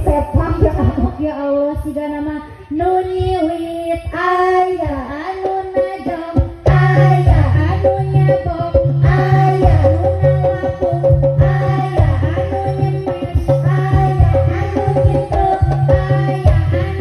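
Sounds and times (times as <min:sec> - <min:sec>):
high singing voice: 0:00.0 - 0:17.0
music with steady bass: 0:06.6 - 0:17.0.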